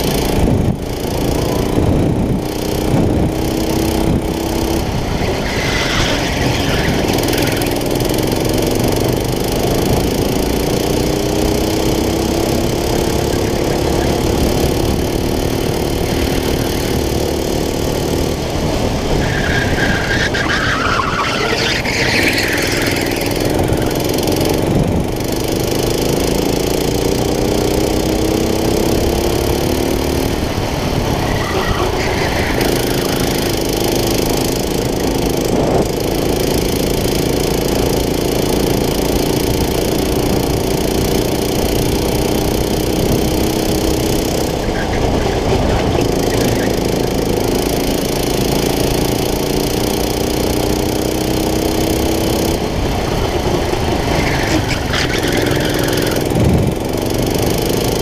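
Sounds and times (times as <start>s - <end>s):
kart engine revving: 0.0s - 58.0s.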